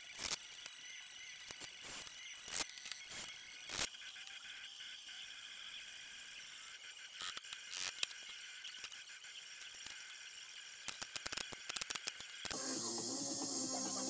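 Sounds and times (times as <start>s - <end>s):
music: 12.5s - 14.0s.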